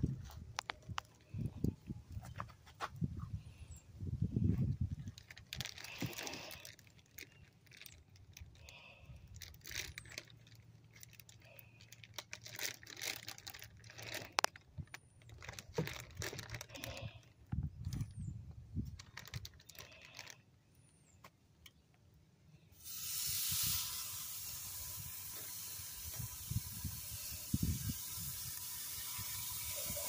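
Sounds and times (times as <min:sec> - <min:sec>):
charcoal crackling and ticking: 0:00.0 - 0:01.8, 0:04.9 - 0:17.9, 0:18.8 - 0:20.5, 0:22.8 - 0:30.0
faint hiss: 0:22.6 - 0:30.0.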